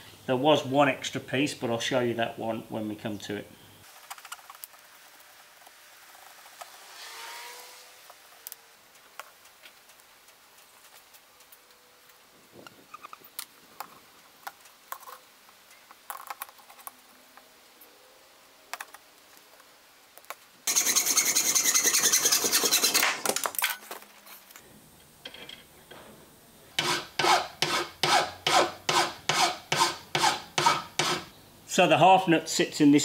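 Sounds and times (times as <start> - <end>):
file rasping on metal: 20.7 - 23.1, 26.8 - 31.3
hacksaw cutting metal: 20.7 - 23.4, 26.8 - 31.3.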